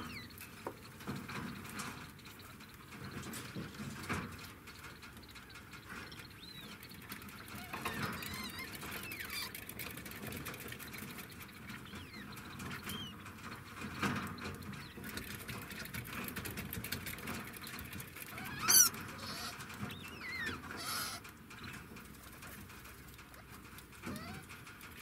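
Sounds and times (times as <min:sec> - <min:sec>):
degus squeaking: 0:00.0 - 0:00.4, 0:04.8 - 0:09.9, 0:10.9 - 0:15.3, 0:17.7 - 0:21.8, 0:24.0 - 0:24.6
warbling squeal: 0:18.3 - 0:21.2.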